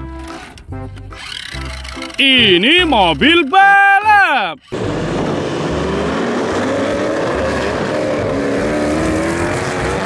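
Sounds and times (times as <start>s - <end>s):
supercar engines revving hard: 4.7s - 10.0s.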